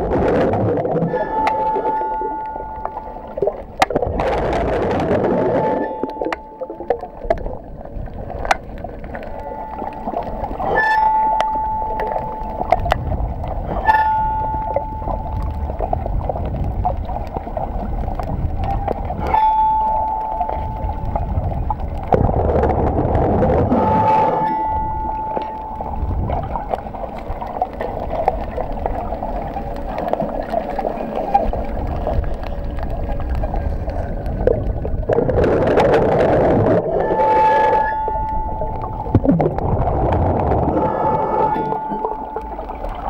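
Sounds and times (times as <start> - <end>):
underwater water rushing and bubbling: 0.0 - 43.0
steady high tone: 23.5 - 26.8, 36.9 - 42.8.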